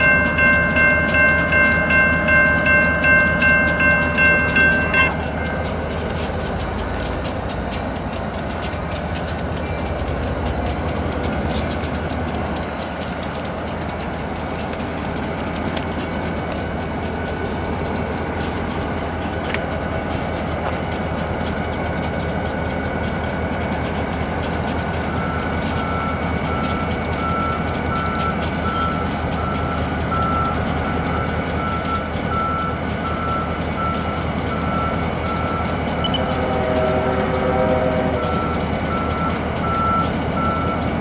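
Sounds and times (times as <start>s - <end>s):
diesel locomotive low rumble: 0.0s - 41.0s
reversing beeper: 25.0s - 41.0s.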